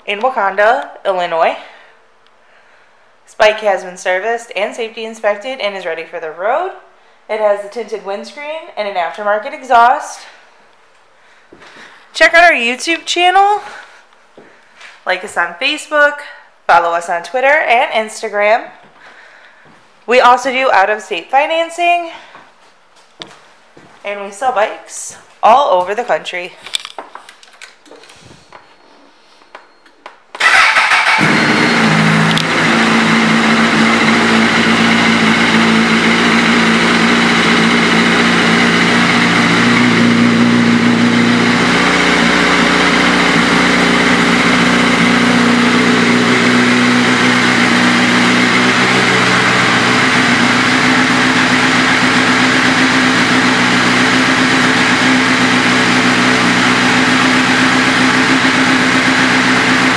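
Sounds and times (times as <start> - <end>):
motorcycle engine starting and idling: 30.4 - 59.9.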